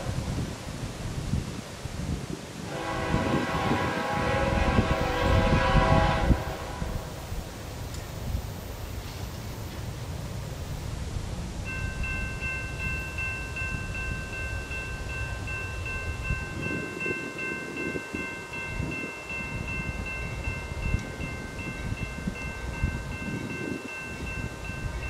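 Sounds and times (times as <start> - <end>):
freight train rumbling: 0.0 - 25.0
wind: 0.0 - 25.0
railroad crossing bell ringing: 11.6 - 25.0.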